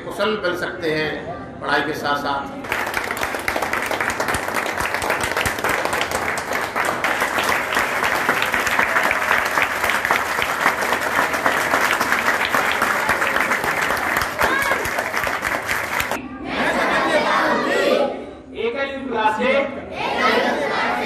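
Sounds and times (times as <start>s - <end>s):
crowd applauding: 2.6s - 16.2s.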